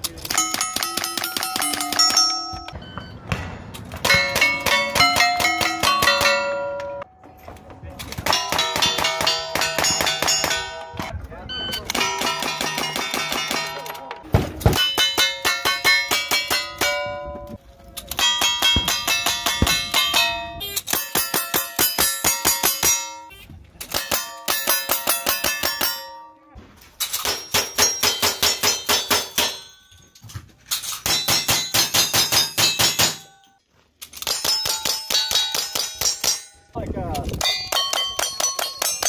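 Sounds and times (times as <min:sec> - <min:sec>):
bullet clanging on steel target: 0:00.2 - 0:02.8, 0:37.3 - 0:39.0.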